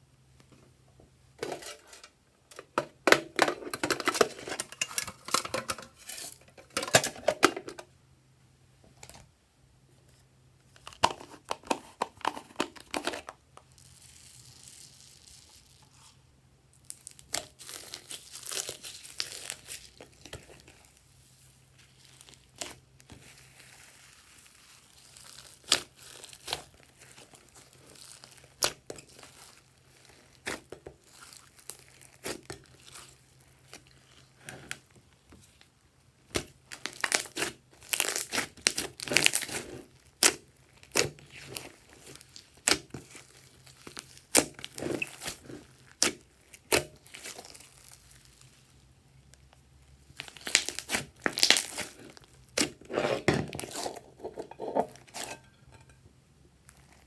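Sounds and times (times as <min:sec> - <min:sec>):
slime popping and crackling: 0:16.7 - 0:21.0, 0:21.8 - 0:34.8, 0:36.2 - 0:49.4, 0:50.1 - 0:54.2
hands squishing sticky slime: 0:16.8 - 0:34.8, 0:36.2 - 0:48.8, 0:50.1 - 0:54.1.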